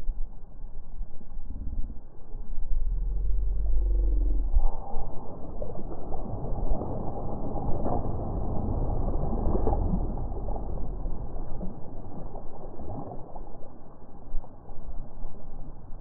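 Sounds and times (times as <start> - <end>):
wind rumble on microphone: 0.0 - 16.0
waves lapping on pebbles: 6.0 - 14.2.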